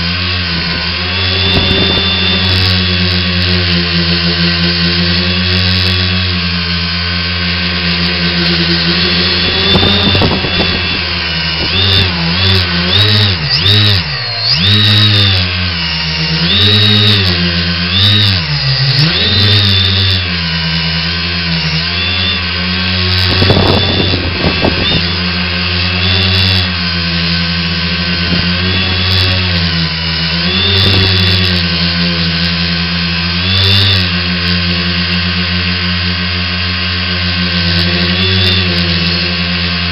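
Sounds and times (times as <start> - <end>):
drone motors buzzing: 0.0 - 39.9
wind noise rushes: 1.4 - 2.3, 9.4 - 12.2, 23.3 - 25.2.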